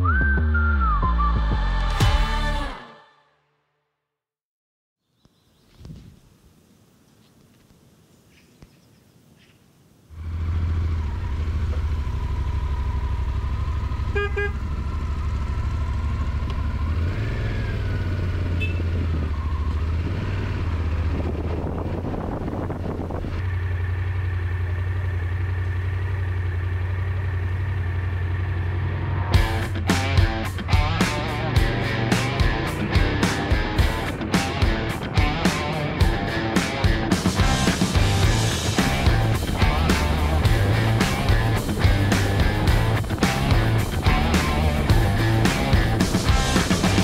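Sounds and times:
motorcycle engine running: 10.2s - 47.0s
short horn toot: 14.0s - 14.6s, 18.5s - 19.0s.

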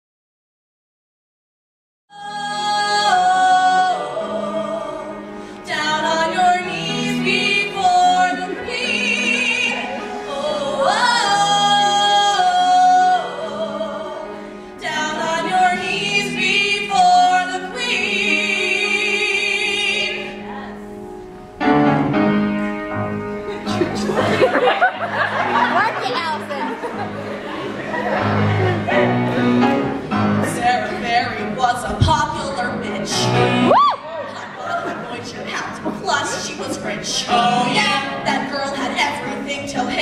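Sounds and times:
women singing in close harmony: 2.2s - 20.6s, 34.3s - 40.0s.

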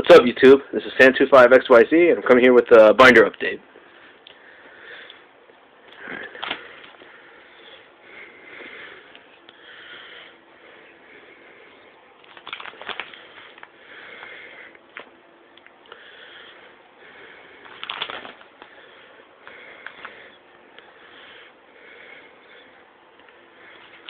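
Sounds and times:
soft sniffing breaths: 3.8s - 12.1s
plastic sleeves crinkling and clacking: 5.9s - 7.1s, 12.2s - 13.8s, 17.6s - 18.8s, 19.8s - 20.2s.

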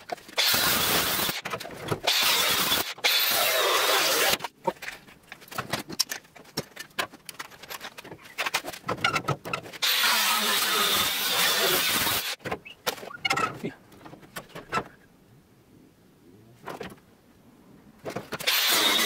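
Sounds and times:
angle grinder cutting sheet steel: 0.4s - 1.4s, 2.1s - 4.4s, 9.8s - 12.4s, 18.4s - 19.0s.

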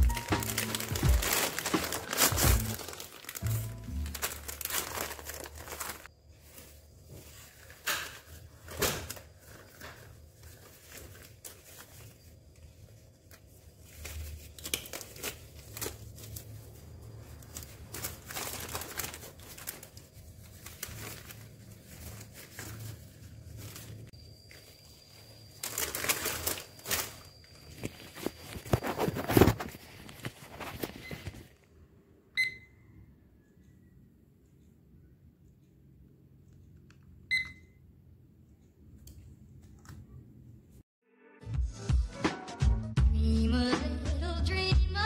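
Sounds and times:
background music: 0.0s - 4.9s, 41.0s - 45.0s
paper wrapper crinkling: 0.0s - 31.6s.

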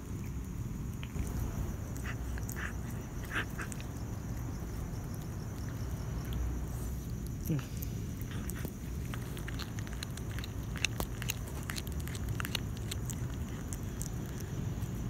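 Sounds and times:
cat chewing and tearing: 0.0s - 15.0s
low background noise: 0.0s - 15.0s
crunching clicks: 7.1s - 15.0s.

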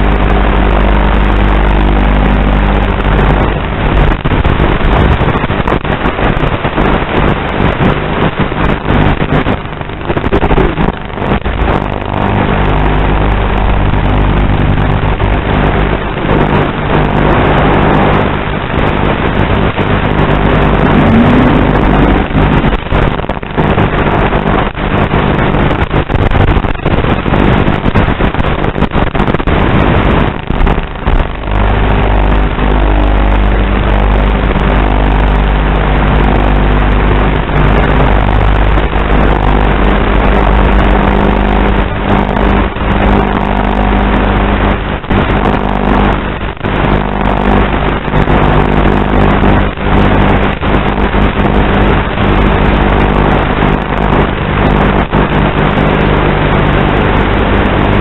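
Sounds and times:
crackles: 0.0s - 58.0s
electrical buzz: 0.0s - 58.0s.

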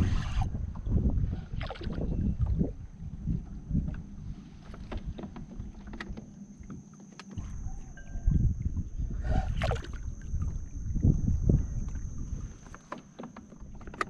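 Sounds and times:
wind buffeting microphone: 0.0s - 6.1s, 7.4s - 12.7s
waves lapping against boat hull: 0.0s - 14.0s
low rumble: 7.4s - 12.6s.

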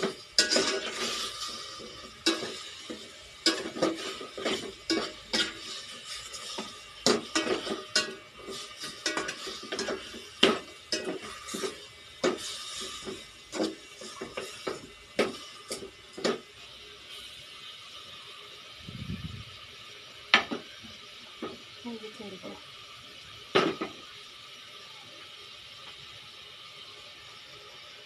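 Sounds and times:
spoon scraping a metal pot: 0.0s - 14.8s
chicken sizzling: 0.0s - 28.0s.

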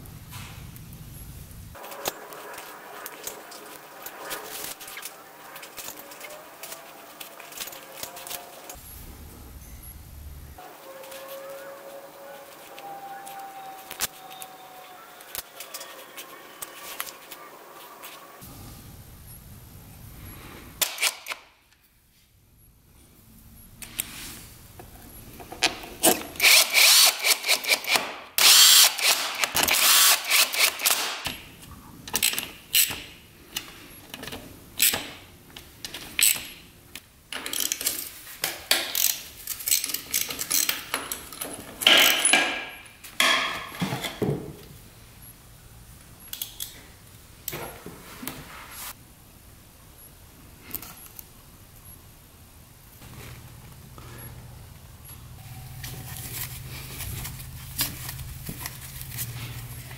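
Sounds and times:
power tool short bursts: 26.4s - 31.1s.

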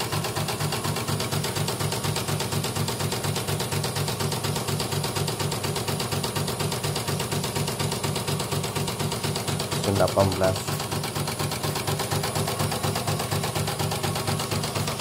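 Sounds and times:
embroidery machine needle clatter: 0.0s - 15.0s
machine motor hum: 7.8s - 15.0s.

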